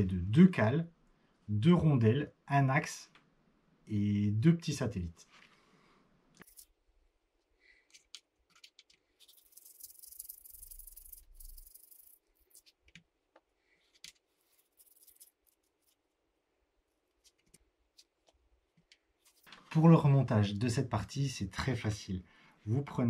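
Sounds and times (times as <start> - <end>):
small metal parts clinking: 7.9 - 12.7.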